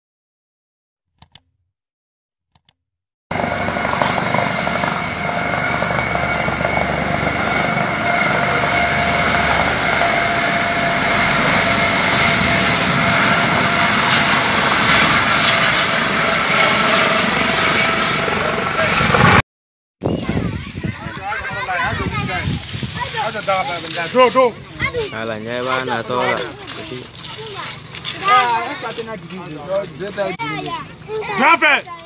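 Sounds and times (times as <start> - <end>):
constant whine: 3.3 - 19.4
helicopter engine and rotors: 3.3 - 19.4, 20.3 - 32.0.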